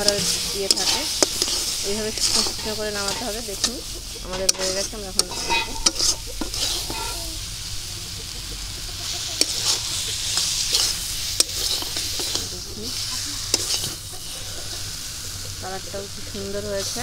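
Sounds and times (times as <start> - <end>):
metal spatula scraping a pan: 0.0 - 7.5, 9.0 - 15.0
curry sizzling: 0.0 - 17.0.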